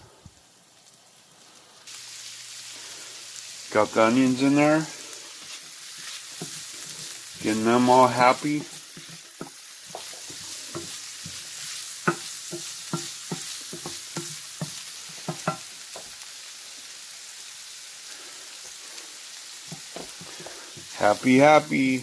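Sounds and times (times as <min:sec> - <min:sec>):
onions sizzling in a skillet: 0:00.0 - 0:22.0
wooden spoon scraping a pan: 0:04.2 - 0:16.1, 0:19.7 - 0:21.9.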